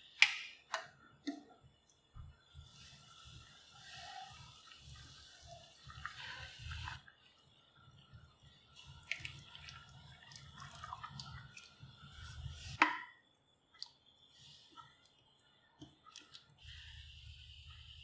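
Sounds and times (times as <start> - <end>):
stew bubbling in a pan: 0.0 - 18.0
wet plops of food poured: 9.0 - 11.8.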